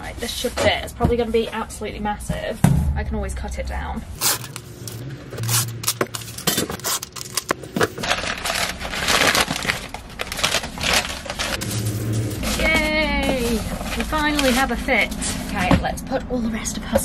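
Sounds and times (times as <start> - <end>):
paper crumpling: 4.2 - 15.4.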